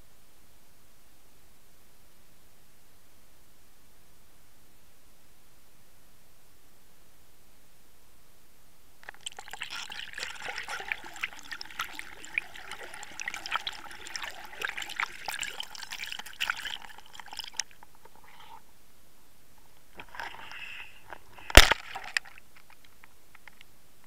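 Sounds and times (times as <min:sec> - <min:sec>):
water sloshing and bubbling: 0:09.0 - 0:18.6.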